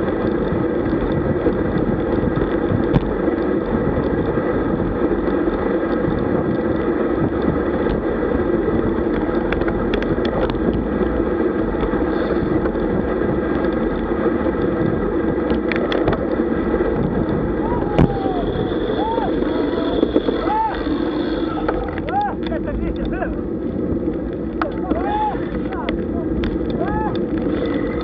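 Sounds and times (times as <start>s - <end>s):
bike tyres on asphalt: 0.0s - 28.0s
wind on microphone: 0.0s - 28.0s
faint clicks: 8.8s - 10.8s, 13.5s - 16.4s, 17.9s - 28.0s.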